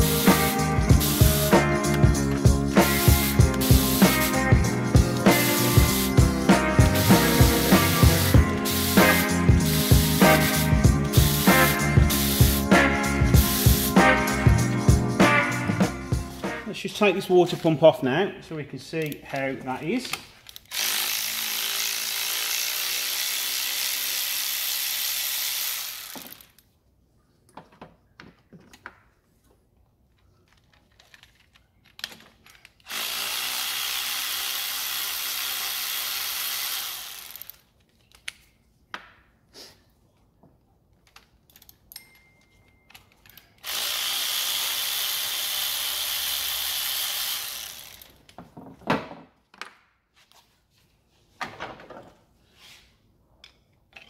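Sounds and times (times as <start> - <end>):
power ratchet running: 0.0 - 14.0, 20.6 - 26.6, 32.8 - 37.7, 43.6 - 48.2
tool and bolts clicking: 30.2 - 34.0, 41.0 - 44.0, 53.4 - 54.0.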